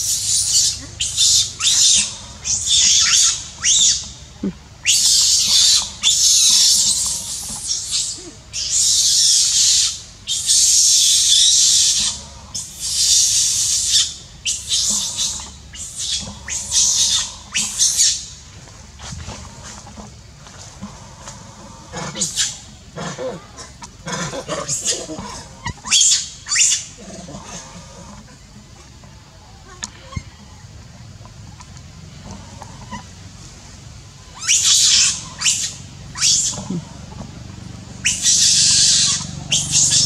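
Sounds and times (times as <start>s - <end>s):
young macaque crying shrilly: 0.0s - 4.0s, 4.8s - 12.2s, 34.4s - 36.8s, 38.0s - 40.0s.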